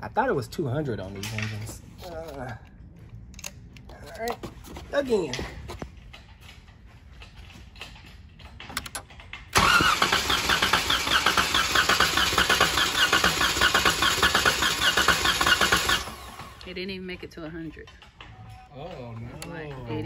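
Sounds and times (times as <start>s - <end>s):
starter cranking engine: 8.8s - 16.8s.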